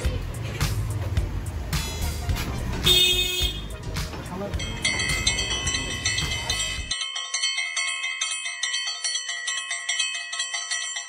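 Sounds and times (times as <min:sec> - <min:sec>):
street noise: 0:00.0 - 0:08.4
bell-like chime jingle: 0:04.5 - 0:11.0.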